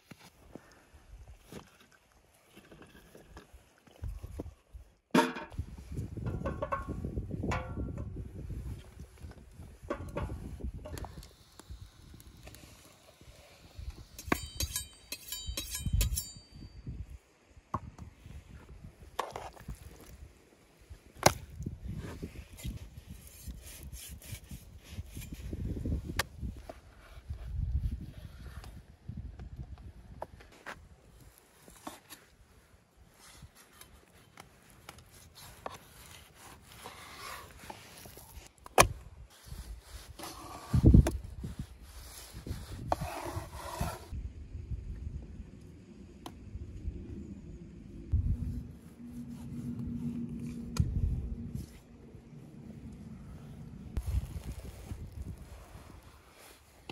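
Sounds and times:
knife blades honing with metallic ring: 14.2s - 16.9s.

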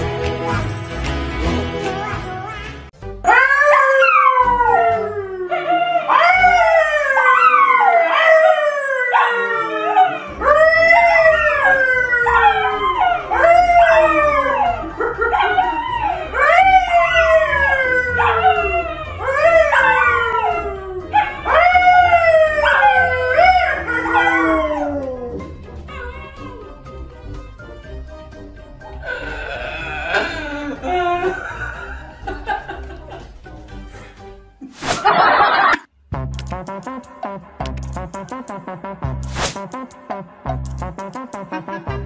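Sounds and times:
dogs howling: 3.3s - 26.8s
man howling: 4.0s - 26.3s, 29.0s - 31.9s.

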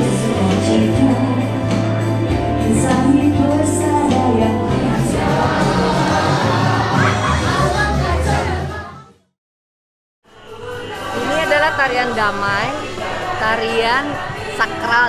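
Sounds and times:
instrumental backing music: 0.0s - 9.0s
person singing: 0.0s - 9.0s.

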